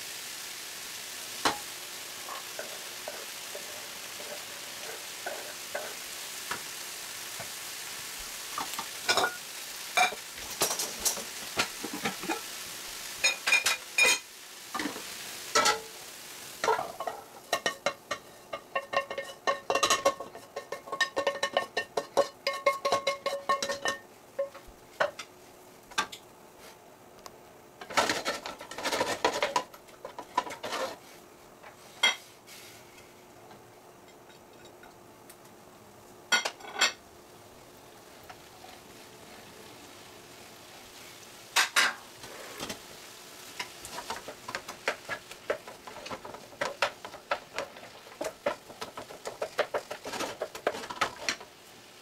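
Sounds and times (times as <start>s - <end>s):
food sizzling in frying pan: 0.0s - 52.0s
utensils and dishes knocking: 16.6s - 25.2s
wooden spoon scraping pan: 27.8s - 31.2s, 43.6s - 51.5s.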